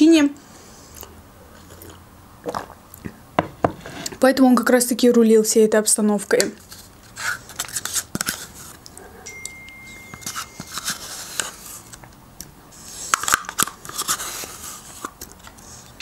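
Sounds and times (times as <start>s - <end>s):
spoon scraping plastic cup: 10.2s - 12.0s.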